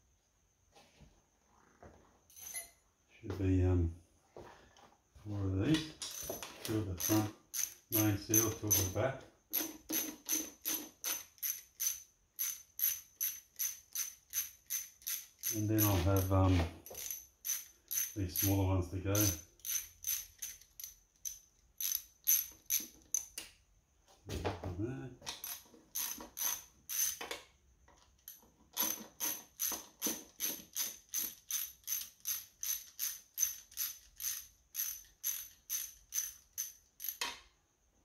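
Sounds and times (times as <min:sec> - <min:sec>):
socket ratchet clicking: 0:06.0 - 0:23.6, 0:25.3 - 0:27.4, 0:28.1 - 0:37.4.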